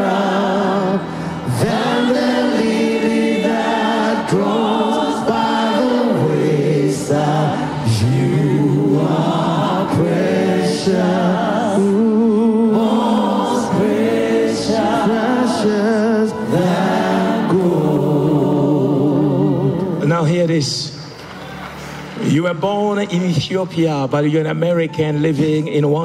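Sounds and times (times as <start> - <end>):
choir singing gospel song: 0.0 - 20.3.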